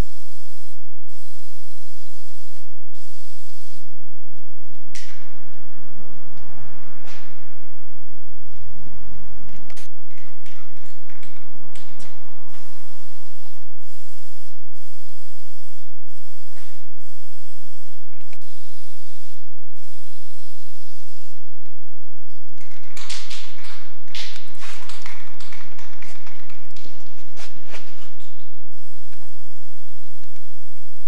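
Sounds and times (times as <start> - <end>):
spray paint can hissing: 0.0 - 3.9, 10.1 - 21.4, 22.6 - 31.0.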